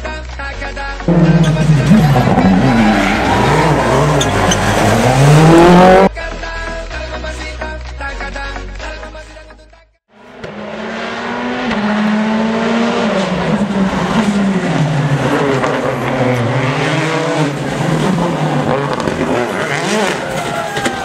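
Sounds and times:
rally car engine revving: 1.1s - 6.1s, 10.2s - 20.6s.

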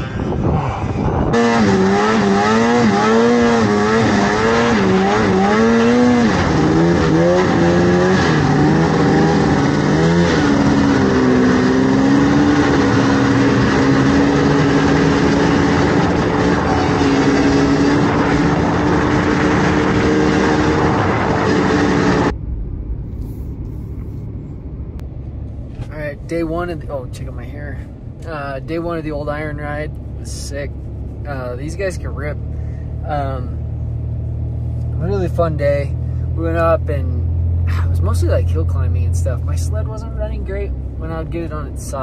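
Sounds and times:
car driving on road: 0.0s - 42.0s.

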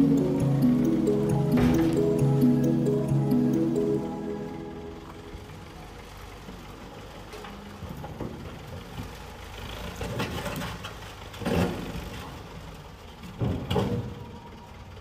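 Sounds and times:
diesel engine running: 0.0s - 8.0s.

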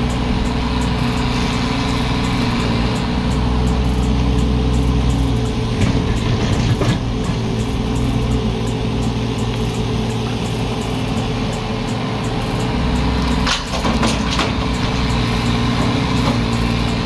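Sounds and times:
excavator diesel engine running: 0.0s - 17.0s
clatter of knocks: 5.7s - 7.6s, 13.4s - 16.9s.

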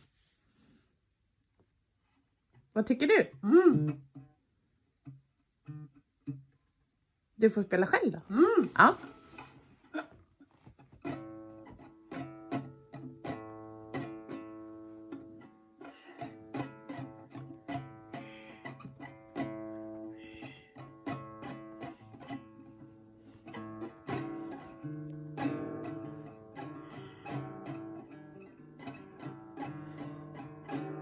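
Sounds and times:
acoustic guitar strumming: 5.0s - 6.6s, 8.6s - 31.0s.

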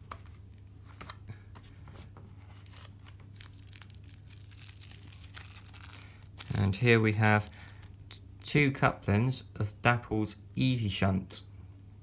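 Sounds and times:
plastic bag crinkling: 2.5s - 8.0s.

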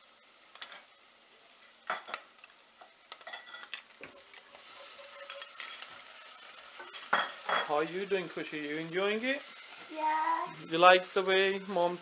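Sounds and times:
onions sizzling in oil: 0.0s - 12.0s
spoons scraping and clinking in pans: 1.8s - 2.3s, 3.1s - 8.2s.

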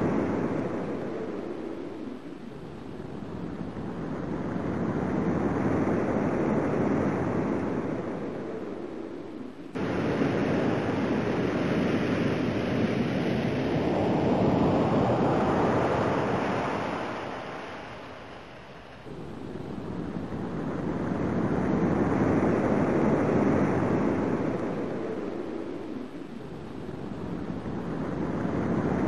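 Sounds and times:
ocean waves rushing: 9.8s - 19.0s.

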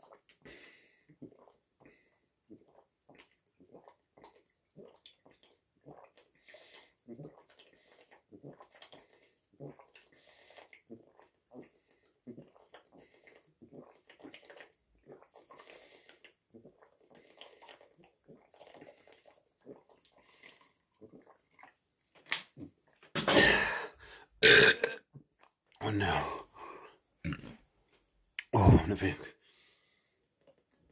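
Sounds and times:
person gulping water: 0.0s - 21.8s, 22.4s - 27.7s, 28.4s - 29.3s.

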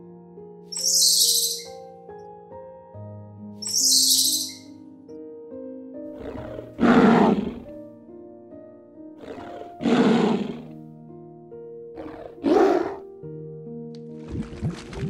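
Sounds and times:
background music with sustained notes: 0.0s - 15.0s
lion roaring: 6.2s - 7.7s, 9.2s - 10.7s, 12.0s - 13.0s.

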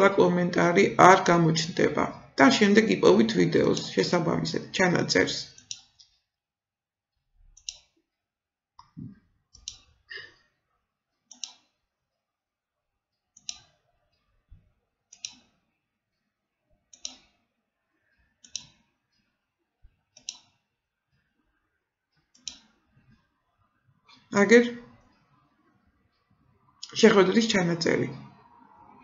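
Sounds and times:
computer mouse clicks: 5.5s - 6.2s, 7.5s - 8.0s, 8.8s - 10.0s, 11.3s - 11.8s, 13.4s - 13.8s, 15.1s - 15.5s, 16.9s - 17.4s, 18.4s - 18.9s, 20.1s - 20.6s, 22.2s - 22.8s.

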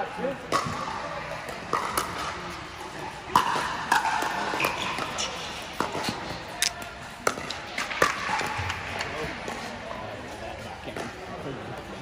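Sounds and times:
paddles hitting ball: 0.5s - 2.6s, 3.3s - 9.7s.

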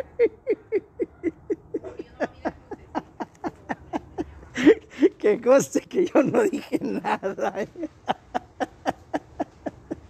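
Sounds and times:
man laughing hard: 0.0s - 5.2s, 6.0s - 10.0s.

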